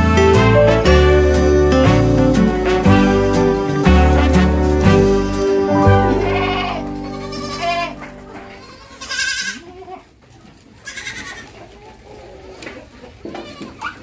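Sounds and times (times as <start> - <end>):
background music: 0.0 - 8.8
goats bleating: 6.1 - 10.1, 10.8 - 11.5.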